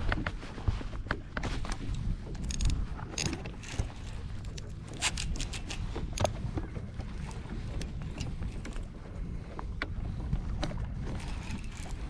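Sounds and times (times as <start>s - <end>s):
water lapping at boat: 0.0s - 12.0s
wind rumbling on microphone: 0.0s - 12.0s
sharp clicks and knocks: 2.4s - 6.4s.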